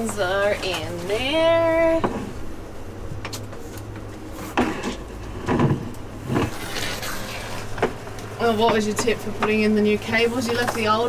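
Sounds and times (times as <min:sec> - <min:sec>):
low steady hum: 0:00.0 - 0:11.0
knocks and sliding scrapes: 0:04.3 - 0:08.0.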